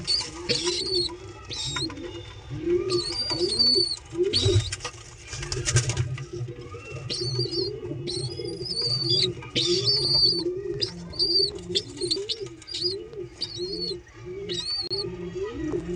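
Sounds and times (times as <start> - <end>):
pigeon pulsing warble: 0.0 - 15.9
pigeon squab squeaking: 0.0 - 15.9.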